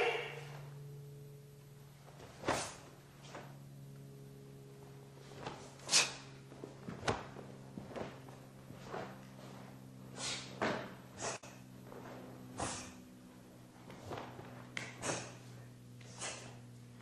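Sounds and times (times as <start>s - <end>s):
steady low hum: 0.0s - 17.0s
staff swishing through air: 2.2s - 3.5s, 5.3s - 8.2s, 8.8s - 13.1s, 13.9s - 16.6s
footwork thuds and knocks: 6.5s - 9.7s, 10.5s - 12.7s.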